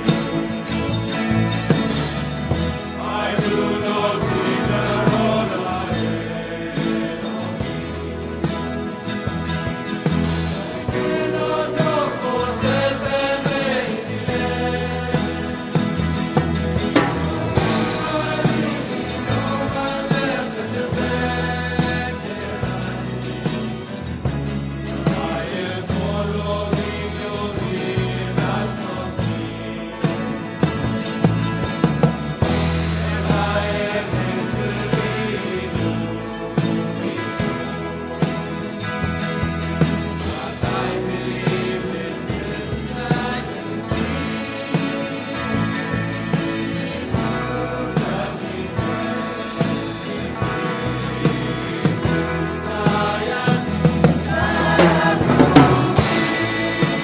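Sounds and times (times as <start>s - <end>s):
acoustic guitars: 0.0s - 57.0s
deep held bass notes: 0.0s - 57.0s
instrumental accompaniment with beat: 0.0s - 57.0s
keyboard: 0.0s - 57.0s
choir singing a hymn: 2.2s - 57.0s
steady beat: 16.4s - 20.4s, 53.7s - 57.0s.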